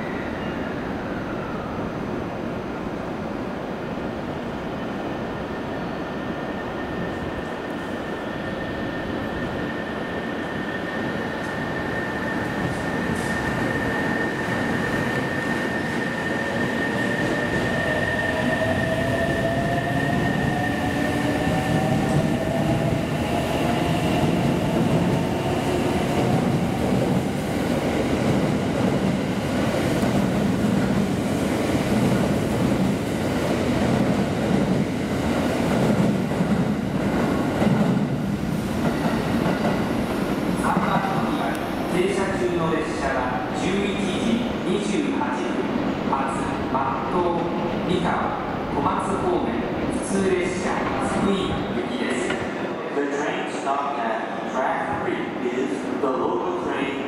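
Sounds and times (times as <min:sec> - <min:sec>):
train wheels rumbling on rails: 0:07.5 - 0:45.2.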